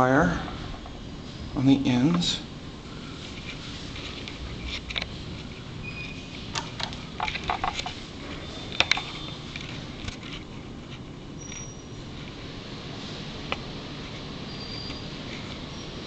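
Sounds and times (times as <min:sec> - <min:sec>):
steady low hum: 0:00.0 - 0:16.0
small clicks and taps: 0:06.5 - 0:08.0, 0:08.7 - 0:10.3.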